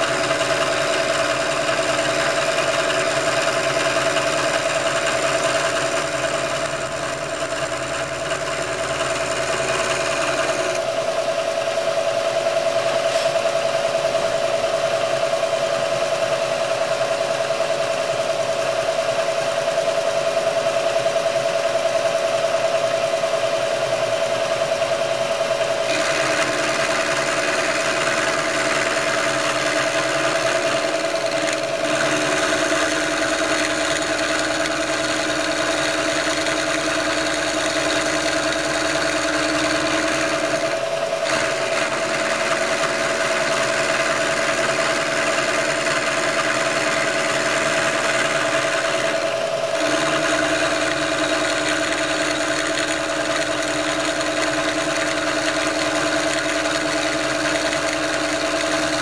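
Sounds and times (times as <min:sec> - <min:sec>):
milling machine cutting metal: 0:00.0 - 0:11.5, 0:25.4 - 0:59.0.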